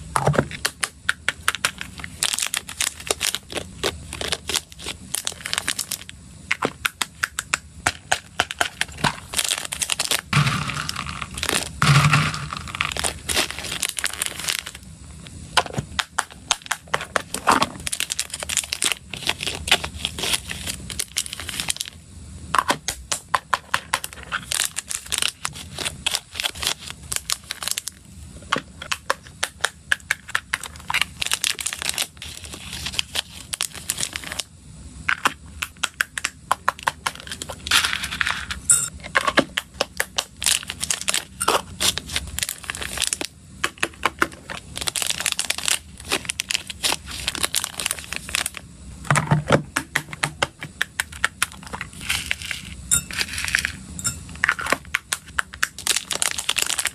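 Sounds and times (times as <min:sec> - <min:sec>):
plastic crinkling: 0:01.4 - 0:14.8, 0:15.6 - 0:22.0, 0:23.8 - 0:28.0, 0:28.8 - 0:34.5, 0:39.6 - 0:48.6, 0:51.0 - 0:56.9.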